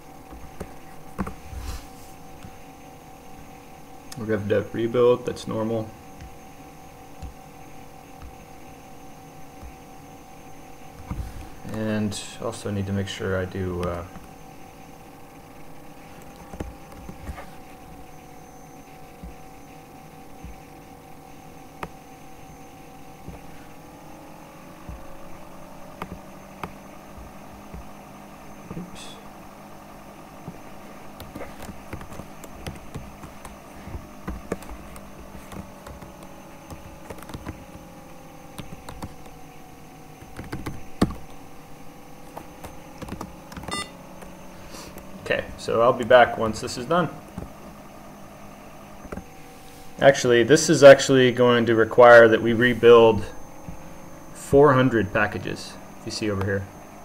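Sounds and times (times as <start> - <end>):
computer fan hum: 0.0 - 57.0
keyboard typing clicks: 26.0 - 26.8, 31.2 - 33.6, 34.2 - 37.8, 38.5 - 39.4, 40.2 - 41.4, 42.3 - 44.3.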